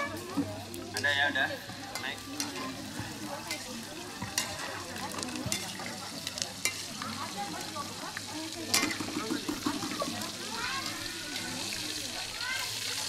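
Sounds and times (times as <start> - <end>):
food sizzling in a wok: 0.0 - 13.0
metal spatula clinking on pan: 1.9 - 7.0, 8.7 - 9.4.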